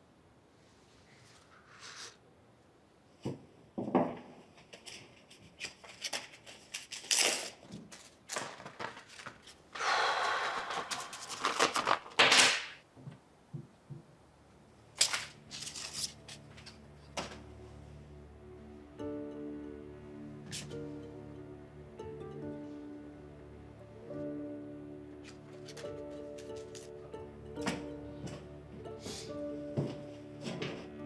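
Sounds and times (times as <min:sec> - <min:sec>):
paper rustling and crinkling: 0:04.6 - 0:09.7, 0:10.7 - 0:12.7, 0:15.0 - 0:17.4
paper envelope tearing: 0:05.6 - 0:09.6, 0:10.6 - 0:12.8, 0:15.0 - 0:16.4
soft low music: 0:14.6 - 0:31.0.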